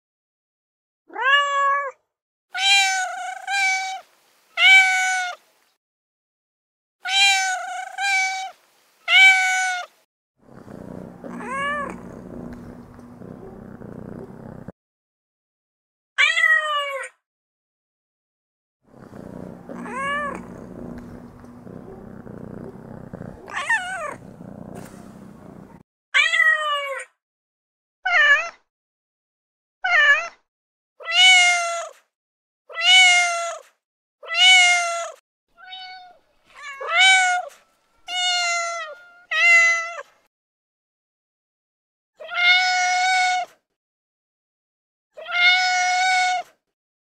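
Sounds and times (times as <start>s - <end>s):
cat meowing: 1.1s - 2.0s, 2.6s - 4.0s, 4.6s - 5.4s, 7.0s - 9.9s, 11.2s - 13.8s, 19.0s - 27.0s, 34.2s - 40.0s, 42.2s - 43.5s, 45.2s - 46.4s.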